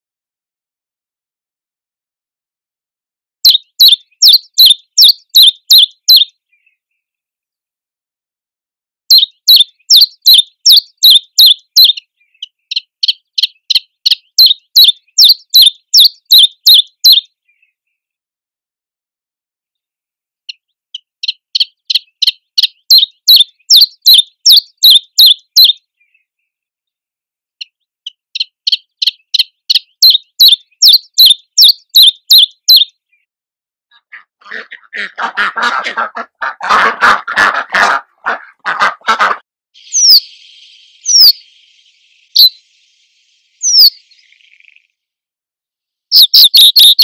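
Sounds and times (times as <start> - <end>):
bird singing sharp high notes: 3.4 - 6.4, 9.1 - 17.7, 21.0 - 26.2, 28.1 - 33.0, 39.8 - 45.0, 46.1 - 47.0.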